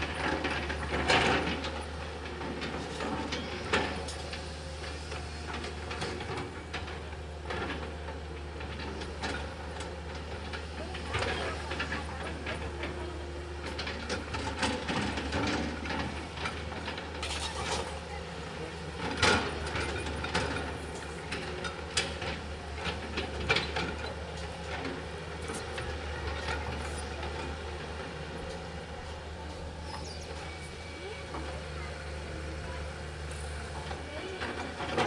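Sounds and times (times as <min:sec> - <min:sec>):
diesel engine running: 0:00.0 - 0:35.0
excavator bucket scraping soil: 0:14.0 - 0:18.0.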